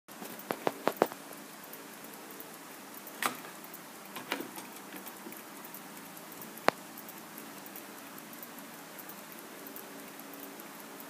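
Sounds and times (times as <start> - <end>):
clock mechanism clicking: 0.1 - 11.0.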